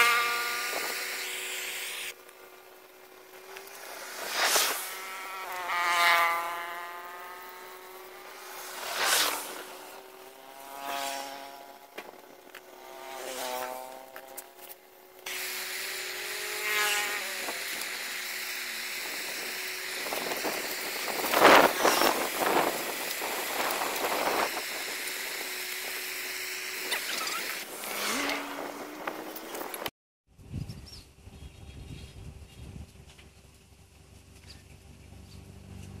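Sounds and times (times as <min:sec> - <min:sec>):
brief wavering pitched sounds: 0:26.7 - 0:29.8.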